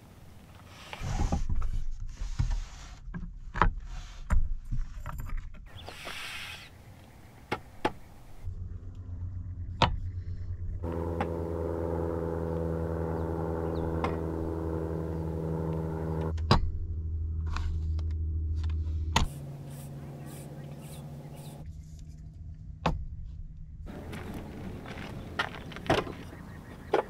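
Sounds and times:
low hum: 6.8 - 26.7.

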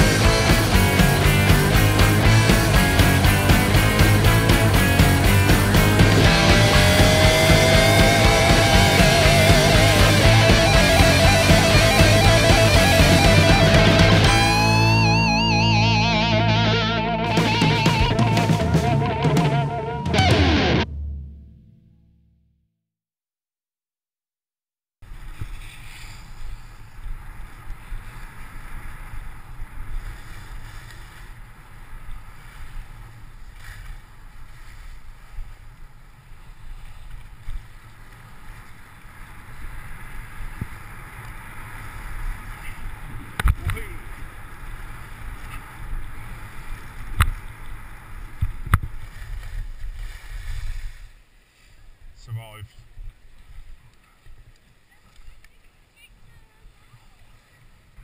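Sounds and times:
skis scraping over snow: 25.0 - 58.0.

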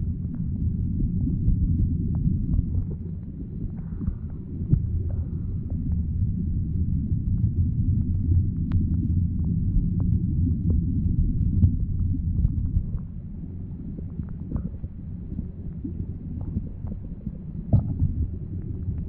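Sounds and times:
underwater rumble of moving water: 0.0 - 19.0
faint ticks: 8.6 - 9.1.

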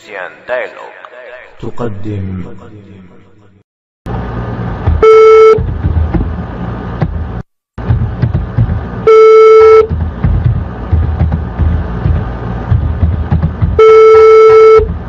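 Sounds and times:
telephone ringback beeps: 13.8 - 14.9.

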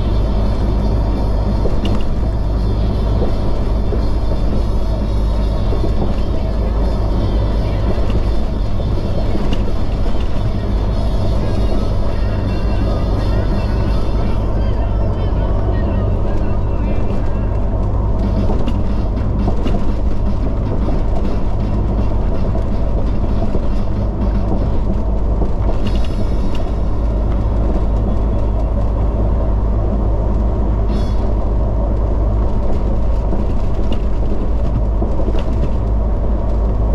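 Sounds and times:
vehicle engine drone and road noise: 0.0 - 36.9.

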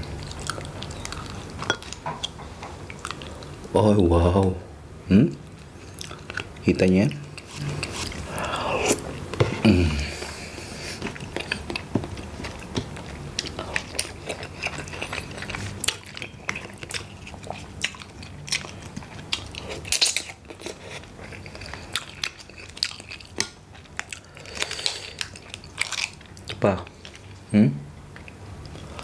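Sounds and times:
chewing and biting: 0.1 - 3.5, 11.0 - 27.3.

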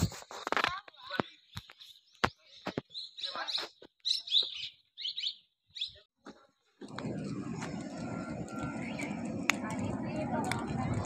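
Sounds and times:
birds chirping: 1.2 - 6.1, 6.9 - 10.7.

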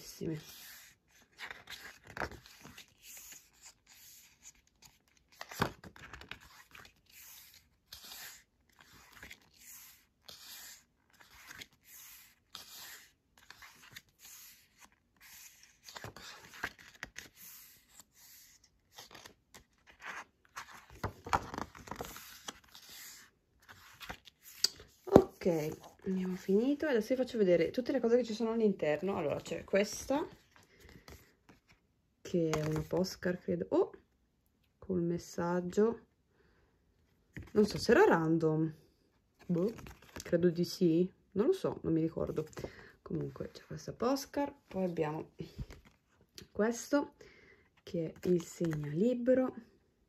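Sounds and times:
paper pages turning: 0.1 - 26.8, 32.5 - 33.2, 39.4 - 40.4, 48.1 - 49.0.

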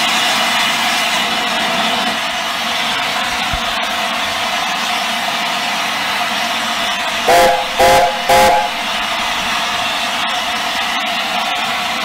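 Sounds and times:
steam locomotive whistle blasts: 7.3 - 9.2.

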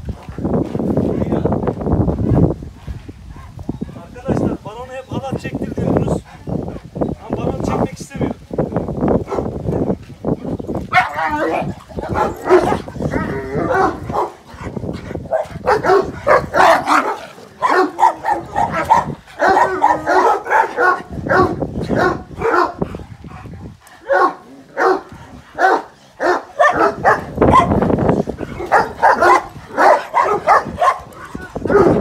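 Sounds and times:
dogs barking: 9.2 - 9.5, 10.9 - 32.0.

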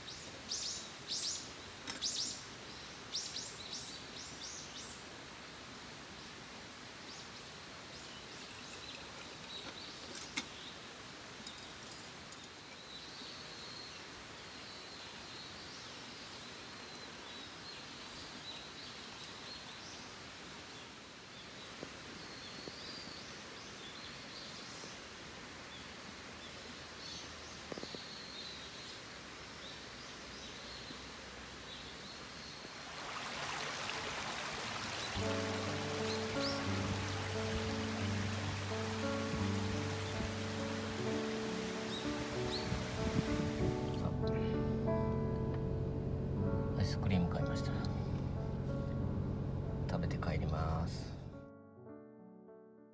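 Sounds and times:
small birds chirping: 0.0 - 5.1, 7.1 - 20.1, 20.8 - 25.0, 25.7 - 32.8, 34.8 - 44.0
steady outdoor hiss: 0.0 - 51.4
loud rushing hiss: 35.0 - 44.0.

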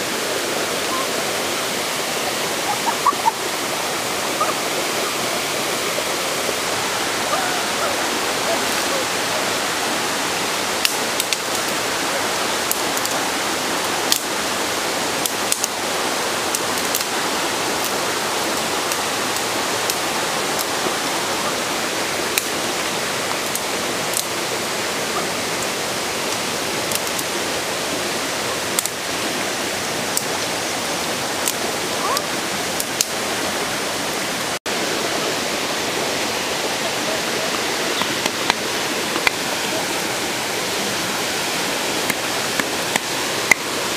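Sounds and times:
waterfall rushing: 0.0 - 43.9
dry sticks snapping and clicking: 10.8 - 11.7, 15.2 - 15.7, 16.5 - 17.1, 23.4 - 24.3, 26.3 - 27.3, 28.8 - 29.0, 31.4 - 31.6, 38.0 - 39.4, 42.1 - 43.6.

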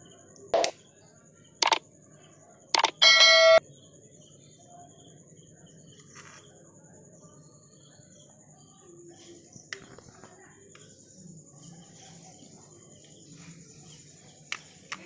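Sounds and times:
short clicks: 0.6 - 0.8, 2.8 - 3.6
bright bell-like ding: 3.0 - 3.6.

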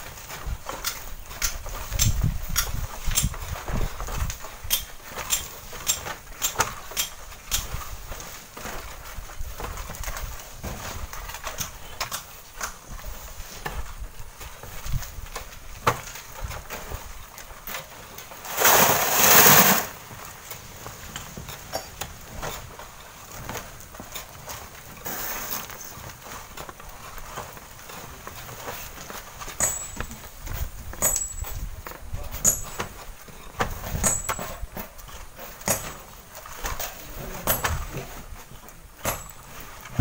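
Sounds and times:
wind rumbling on microphone: 1.5 - 4.4
bamboo poles scraping sandy cliff: 18.3 - 20.1, 25.0 - 26.2
loud rushing hiss: 18.4 - 20.0.

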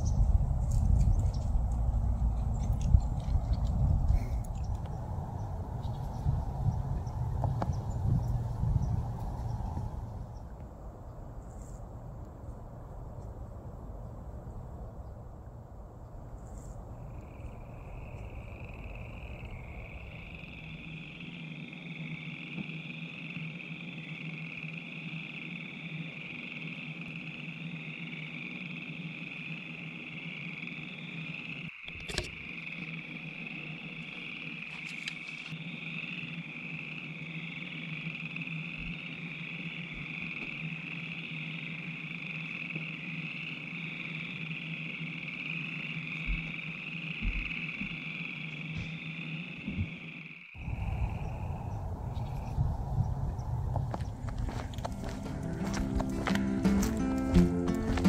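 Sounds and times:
low rumble: 0.0 - 21.3, 50.6 - 57.0
frog chorus: 16.0 - 58.0
low steady hum: 50.6 - 57.0.

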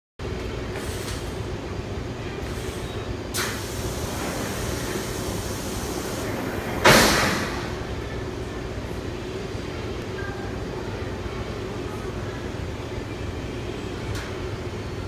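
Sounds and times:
air hiss: 2.5 - 7.7.

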